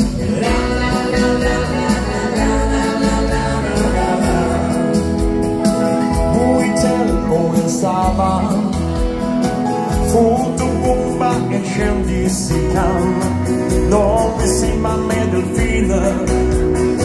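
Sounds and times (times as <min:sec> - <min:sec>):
wavering lead melody: 0:00.0 - 0:11.2
live dance band playing: 0:00.0 - 0:17.0.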